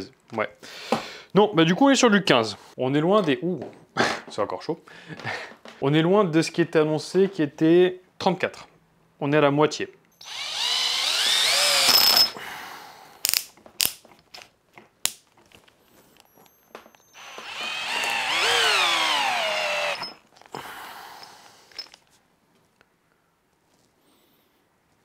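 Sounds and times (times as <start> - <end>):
cordless drill whirring: 10.2 - 12.4, 17.0 - 20.2.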